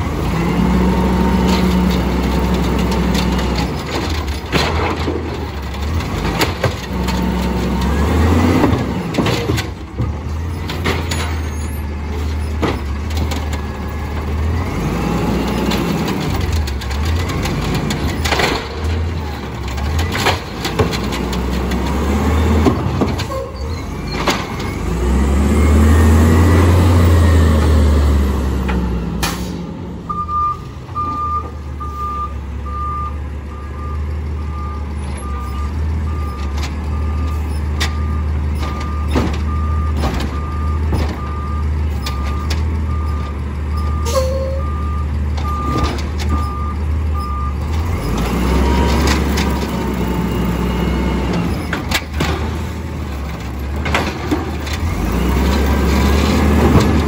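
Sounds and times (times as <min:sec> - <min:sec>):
garbage truck engine revving: 0:00.0 - 0:31.9, 0:33.7 - 0:57.0
backup alarm beeping: 0:30.1 - 0:34.0.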